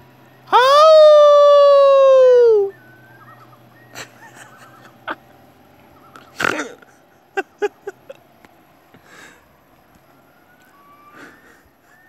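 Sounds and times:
loons calling faintly: 0.4 - 8.2, 10.6 - 12.0.

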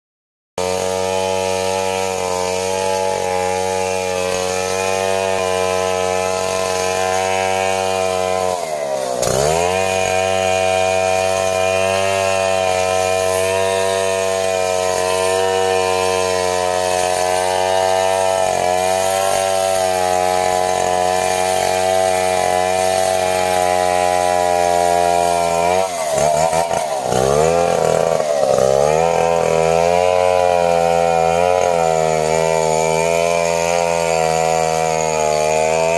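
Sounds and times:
chainsaw cutting log: 0.6 - 35.9.

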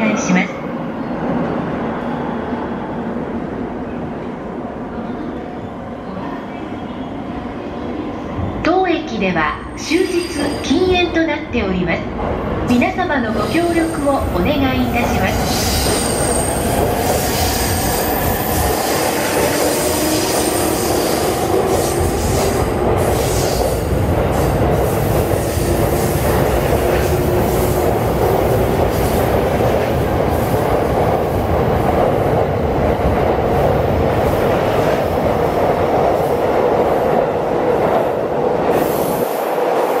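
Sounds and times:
train wheels rumbling and clattering: 13.3 - 40.0.

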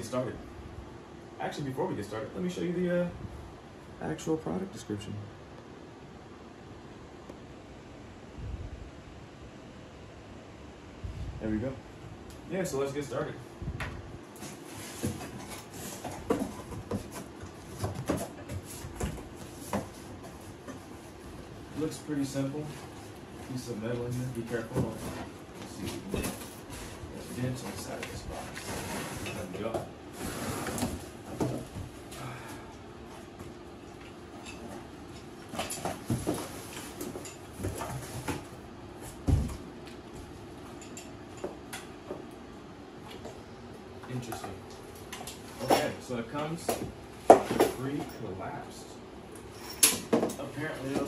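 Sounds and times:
knocks and thumps on cardboard: 39.2 - 39.6.

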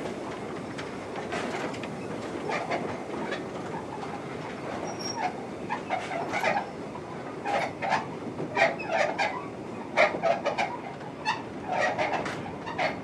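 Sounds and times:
wheels clicking over rail joints: 10.0 - 13.0.

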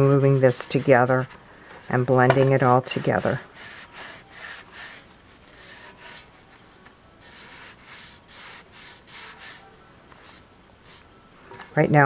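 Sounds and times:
cloth rag rubbing on tin: 0.0 - 6.3.

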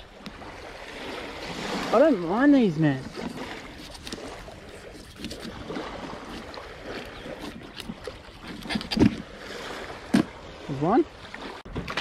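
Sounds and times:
small waves washing: 0.0 - 12.0
knife cutting fish on plastic board: 3.8 - 5.6.

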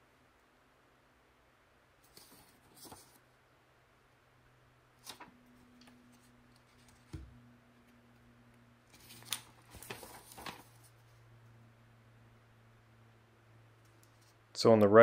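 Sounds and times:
paper pages rustling: 2.0 - 3.2, 5.0 - 7.2, 8.9 - 11.2.

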